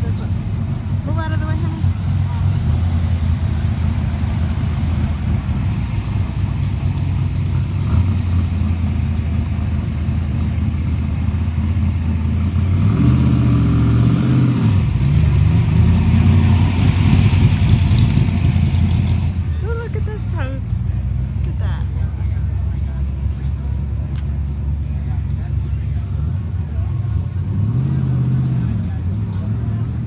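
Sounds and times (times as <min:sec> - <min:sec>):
car engines cruising past: 0:00.0 - 0:30.0
engine revving: 0:12.2 - 0:19.5, 0:26.9 - 0:30.0.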